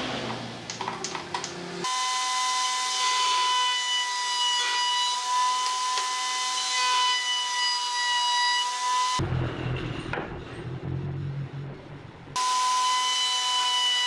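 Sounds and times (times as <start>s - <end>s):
router high whine: 1.8s - 9.2s, 12.4s - 14.0s.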